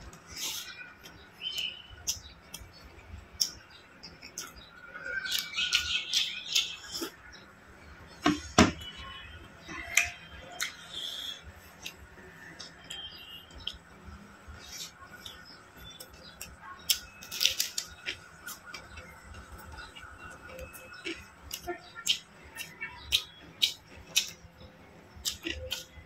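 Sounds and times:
man chewing food: 9.8 - 24.5, 25.1 - 26.0
mouth clicks and lip smacks: 9.9 - 12.0, 25.2 - 26.0.

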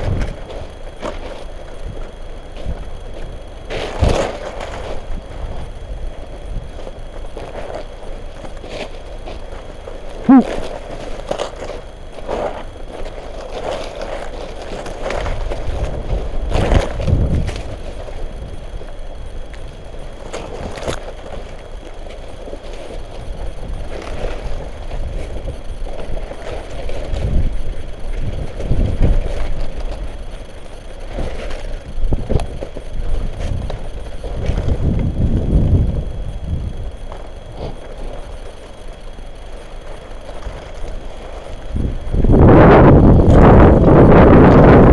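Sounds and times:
brittle stalks crackling: 0.0 - 44.9
low microphone rumble: 14.4 - 44.9.

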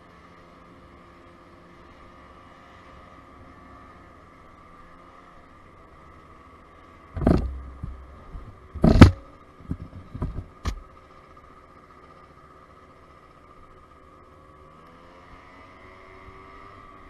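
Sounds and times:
scooter engine running: 0.0 - 17.0
arm rustling against camera: 7.2 - 10.8.

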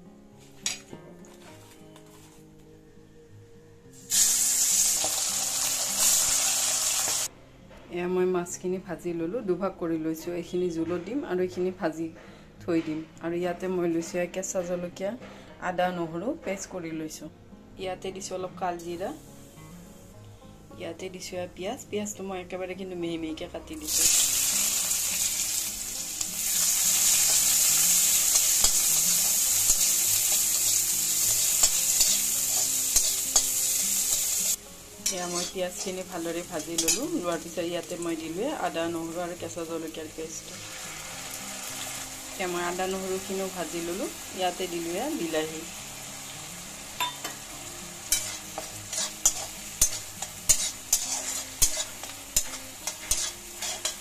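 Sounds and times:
onions sizzling in hot oil: 3.9 - 7.3, 23.8 - 54.0
metal spatula tapping and scraping pan: 36.6 - 37.1, 48.1 - 54.0.

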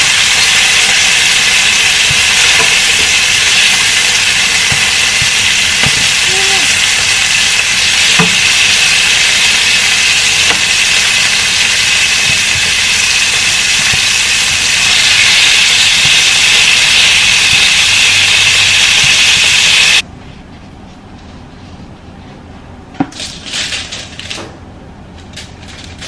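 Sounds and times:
meat sizzling in frying pan: 0.0 - 20.0.

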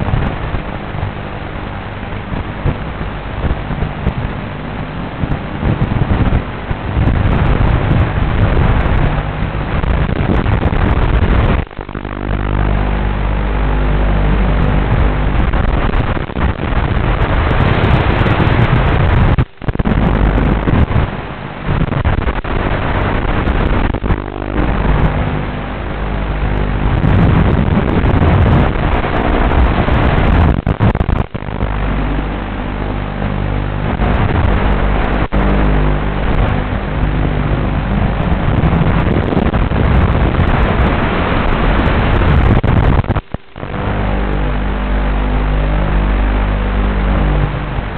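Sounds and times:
rushing wind noise: 0.0 - 47.9
quadcopter motors and propellers: 10.9 - 15.4.

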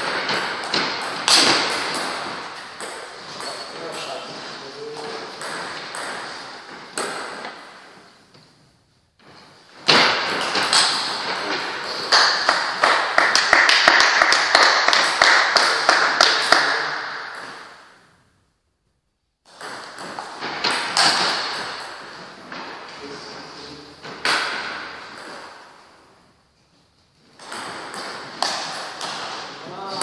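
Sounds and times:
ball bouncing on table: 19.5 - 21.9, 27.4 - 30.0.

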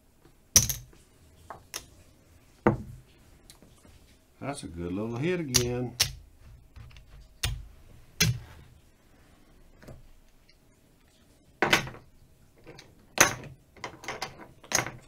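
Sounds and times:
casino chips clacking: 5.5 - 6.2.

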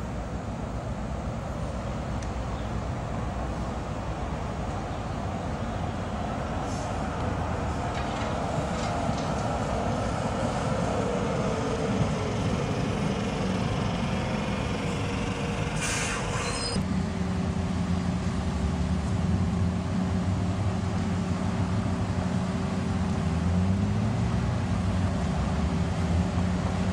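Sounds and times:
tram rumbling past: 0.0 - 23.4
steady low hum: 9.5 - 20.1
electric motor whine: 11.0 - 16.8
short hiss: 15.8 - 16.6.

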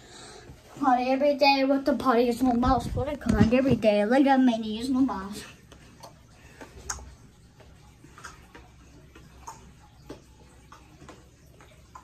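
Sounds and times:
child footsteps clicks and taps: 5.7 - 12.0.

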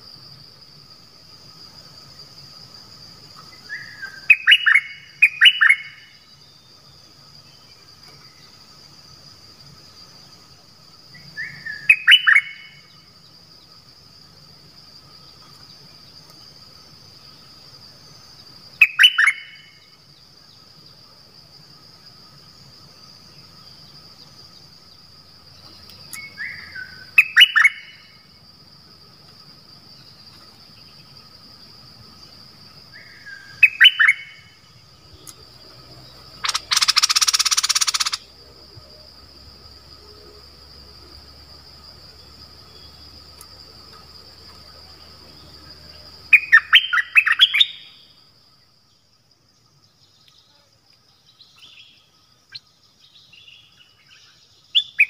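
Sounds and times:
bird singing short phrases: 36.4 - 38.2.

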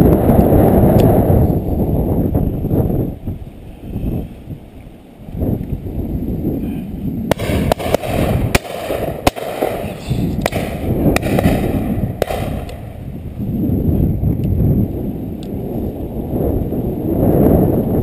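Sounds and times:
wind on microphone: 0.0 - 18.0
shotgun shots: 7.3 - 13.0.

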